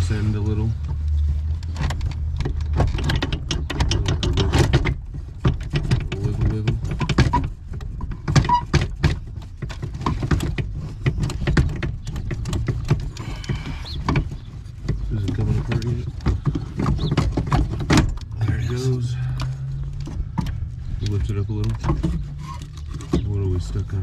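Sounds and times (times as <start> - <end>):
steady low rumble: 0.0 - 24.0
metallic clicks and knocks: 1.1 - 18.6.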